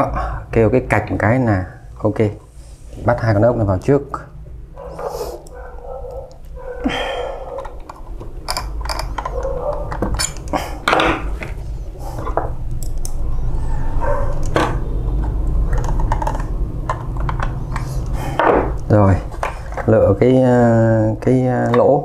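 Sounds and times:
steady low hum: 0.0s - 22.0s
plastic and metal parts clicking: 7.5s - 13.2s, 14.3s - 20.0s.

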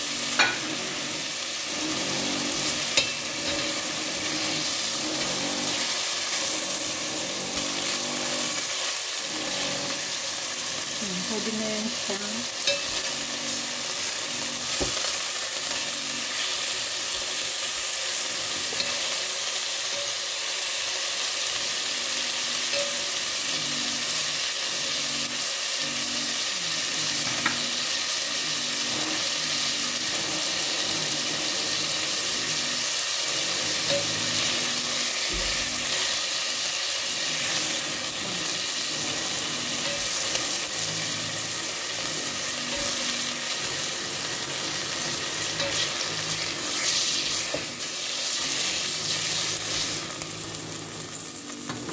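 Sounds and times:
meat sizzling in frying pan: 0.0s - 51.9s.

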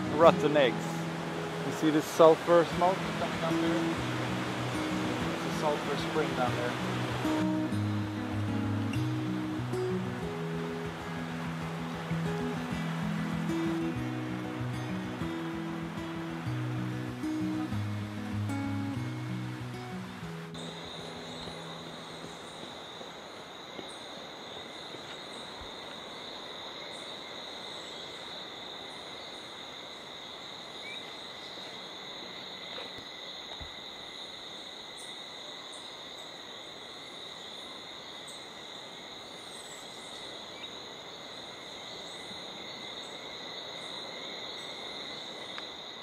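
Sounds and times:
background hiss: 0.0s - 46.0s
insect trilling drone: 20.5s - 46.0s.

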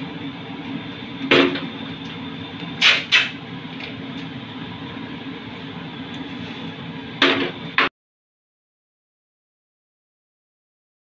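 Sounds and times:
steady background hum: 0.0s - 7.9s.

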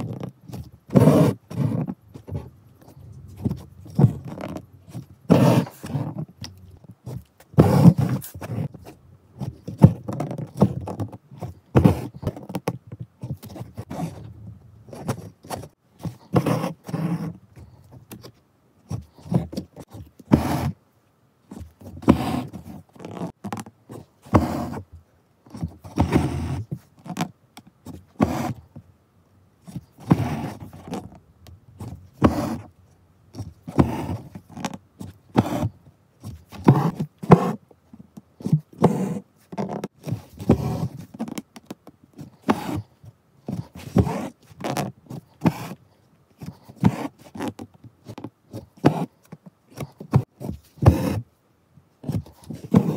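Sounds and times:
needle and thread rubbing through fabric: 0.0s - 12.6s, 14.9s - 20.8s, 21.5s - 24.9s, 29.6s - 31.2s, 31.8s - 32.7s, 33.3s - 37.6s, 38.4s - 41.5s, 42.1s - 45.8s, 46.4s - 51.3s, 52.0s - 52.9s.

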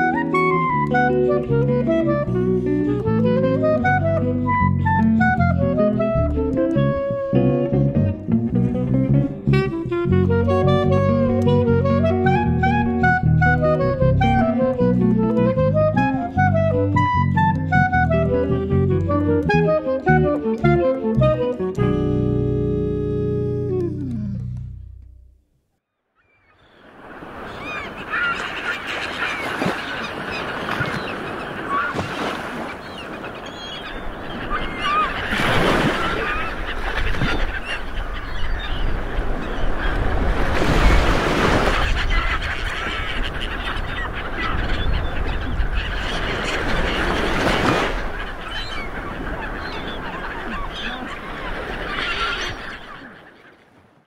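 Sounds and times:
water birds honking: 0.0s - 24.5s, 26.2s - 54.0s
surf: 26.8s - 54.0s.

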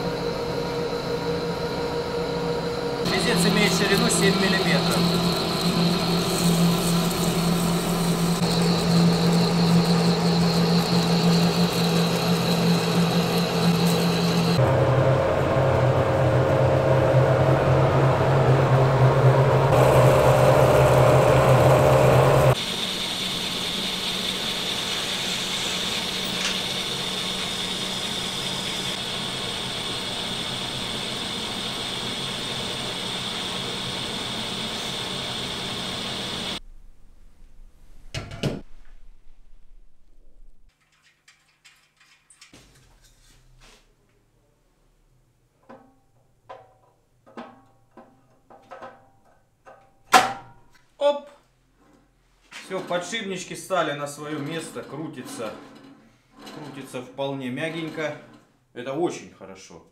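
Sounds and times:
metal lathe hum and whine: 0.0s - 36.6s.

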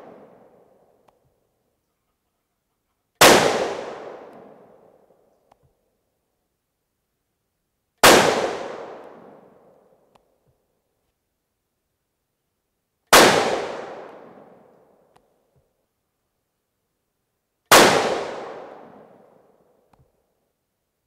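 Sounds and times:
rifle shots: 3.2s - 4.7s, 8.0s - 9.5s, 13.1s - 14.5s, 17.7s - 19.2s
faint click: 5.3s - 5.8s, 19.9s - 20.2s.

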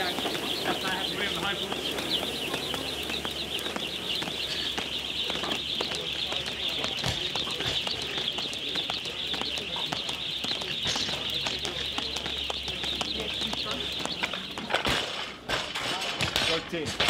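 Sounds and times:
birds chirping chorus: 0.0s - 17.0s.

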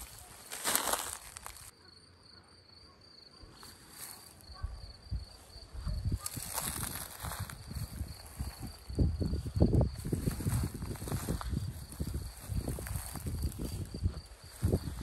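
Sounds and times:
plants rustling: 0.0s - 1.7s
soft footsteps: 0.0s - 1.7s.

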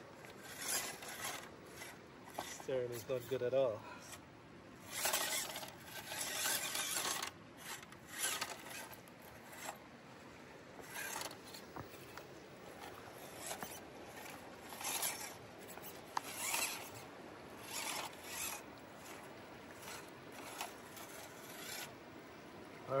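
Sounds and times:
toy truck motor whirring: 0.2s - 3.4s, 4.0s - 4.2s, 4.8s - 9.8s, 10.8s - 22.0s.

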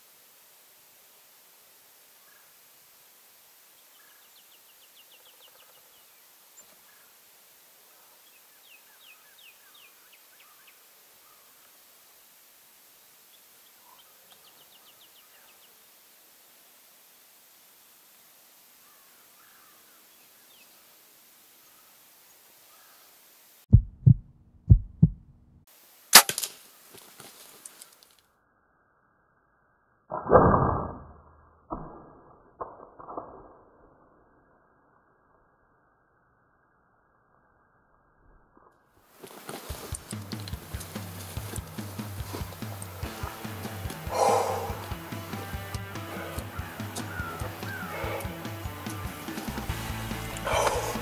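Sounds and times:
heartbeat thumps: 23.7s - 25.6s
field ambience: 23.7s - 28.2s, 39.1s - 51.0s
gunshot crack: 26.1s - 26.5s
clicks and rustles: 26.2s - 28.2s, 39.2s - 43.3s
songbird whistled notes: 46.2s - 49.6s.

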